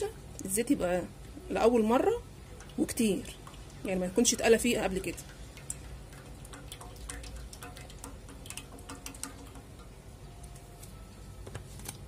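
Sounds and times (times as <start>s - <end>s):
oil pouring into frying pan: 2.6s - 10.0s.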